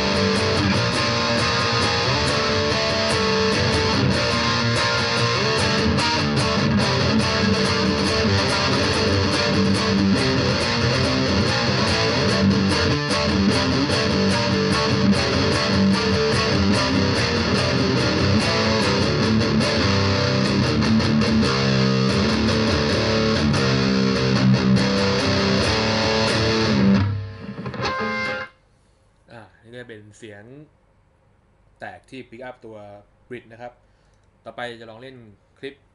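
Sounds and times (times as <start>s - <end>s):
distorted electric guitar riff: 0.0s - 28.6s.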